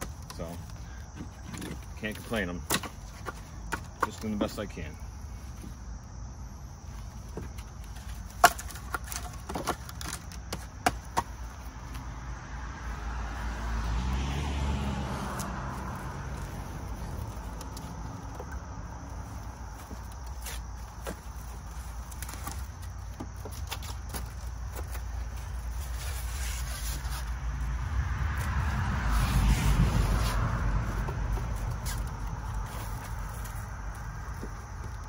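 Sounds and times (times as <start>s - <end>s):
firewood knocking together: 0.0s - 4.5s, 7.2s - 11.5s.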